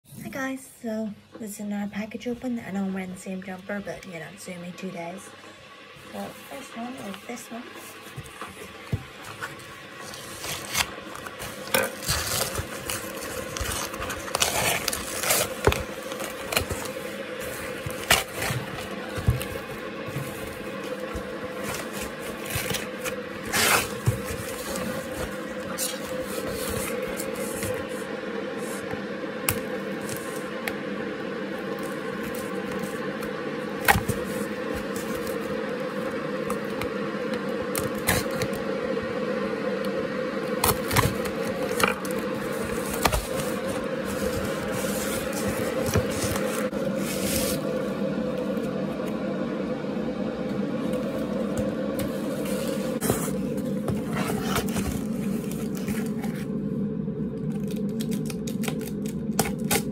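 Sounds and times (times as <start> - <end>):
steady background hum: 0.0 - 59.9
cardboard scraped and handled: 6.1 - 30.5, 33.8 - 35.6, 40.7 - 48.0, 51.2 - 56.5
packing tape pulled: 10.0 - 17.0, 57.6 - 59.9.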